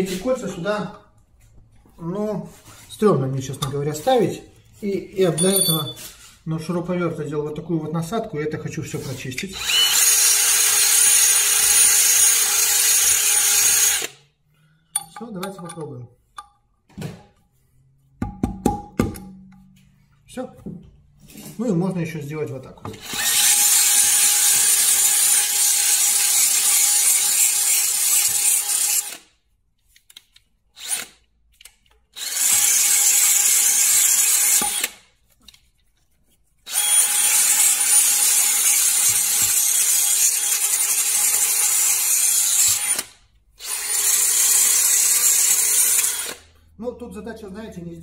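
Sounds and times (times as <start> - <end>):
cordless drill scouring metal: 9.6 - 14.2, 22.9 - 29.3, 30.8 - 31.2, 32.1 - 35.0, 36.7 - 46.5.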